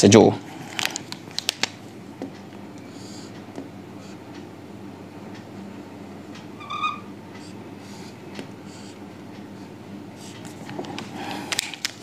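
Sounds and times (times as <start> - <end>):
high squeak of marker: 6.6 - 7.2.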